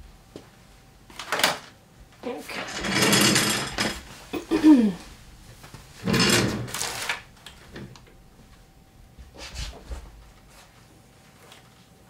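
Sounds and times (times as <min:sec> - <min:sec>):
faint steady whine: 0:03.6 - 0:12.0
rustling scrape: 0:09.3 - 0:10.9.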